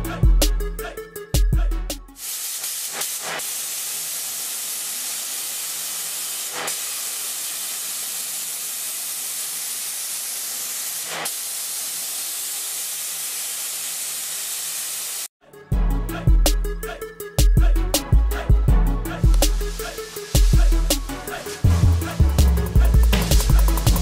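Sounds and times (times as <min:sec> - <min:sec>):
spray gun air hiss: 0:02.1 - 0:15.3, 0:19.2 - 0:24.0.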